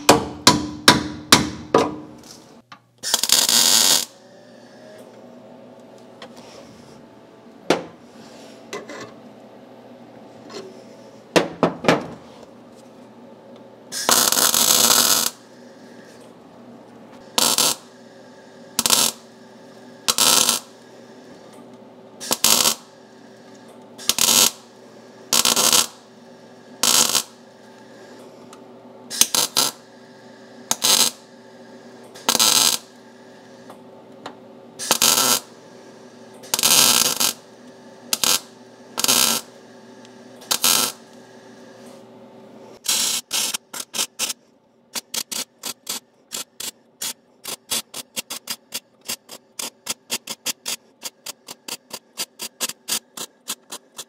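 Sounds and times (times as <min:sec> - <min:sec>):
faint welder hum: 0:00.0 - 0:54.0
welding arc crackling: 0:03.0 - 0:04.2, 0:14.0 - 0:15.5, 0:17.2 - 0:18.0, 0:18.7 - 0:19.3, 0:20.0 - 0:20.8, 0:22.2 - 0:23.0, 0:24.0 - 0:24.7, 0:25.3 - 0:26.1, 0:26.8 - 0:27.4, 0:29.1 - 0:29.9, 0:30.7 - 0:31.3, 0:32.2 - 0:33.0, 0:34.8 - 0:35.6, 0:36.5 - 0:37.5, 0:38.1 - 0:39.6, 0:40.4 - 0:41.2, 0:42.8 - 0:54.0.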